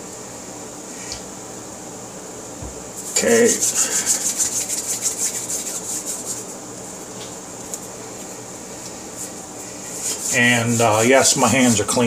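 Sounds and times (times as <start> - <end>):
low background hum: 0.0 - 12.0
quick rhythmic rubbing: 3.0 - 7.1, 7.7 - 11.9.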